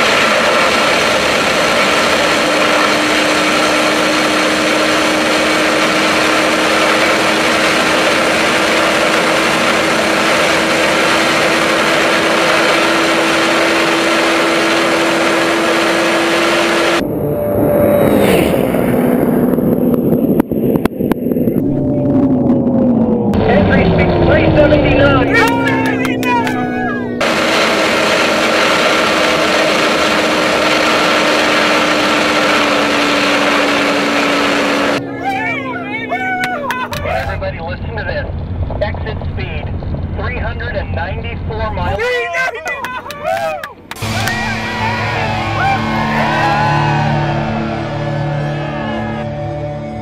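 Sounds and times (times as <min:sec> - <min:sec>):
wind noise rushing: 0:00.0 - 0:25.6
motorcycle engines running hard: 0:00.0 - 0:42.0, 0:43.7 - 0:50.0.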